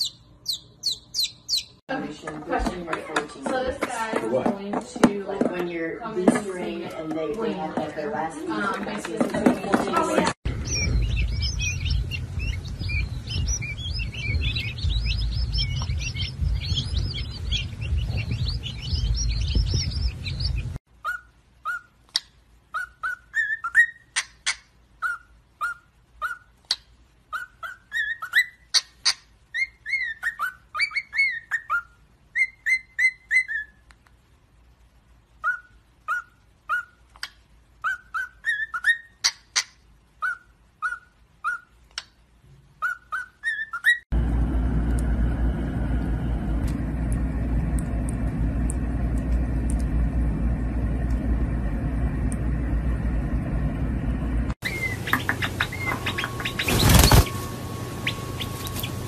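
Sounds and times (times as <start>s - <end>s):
chicks peeping: 0.0s - 1.8s, 8.7s - 20.8s, 54.6s - 59.0s
cockatiels whistling: 0.0s - 1.8s, 10.5s - 33.8s, 35.4s - 41.7s, 42.8s - 44.0s, 54.6s - 59.0s
low rumble: 10.5s - 20.8s, 44.1s - 56.4s.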